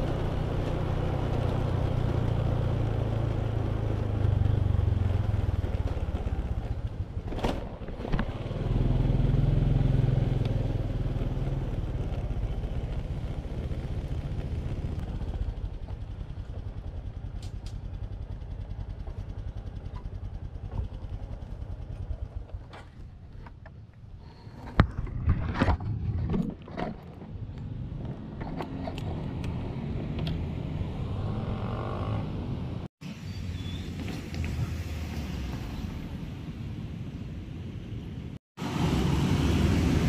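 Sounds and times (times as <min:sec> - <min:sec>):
scooter engine running: 0:00.0 - 0:22.7.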